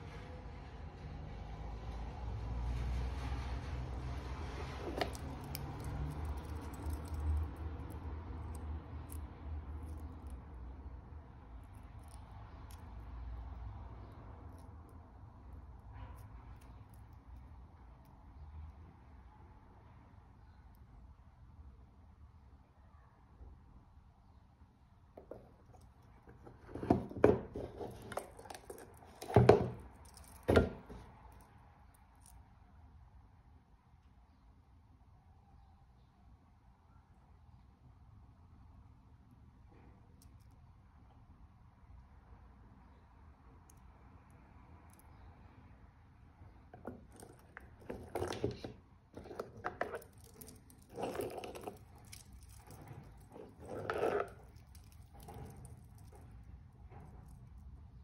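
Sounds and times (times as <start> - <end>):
knocks and clicks of watch boxes: 26.5 - 31.0
metal watch bracelets clicking: 29.8 - 30.5.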